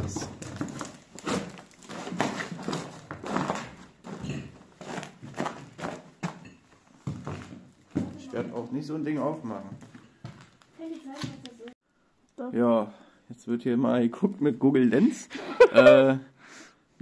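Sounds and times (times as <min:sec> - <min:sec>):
footsteps on debris: 0:00.0 - 0:11.7.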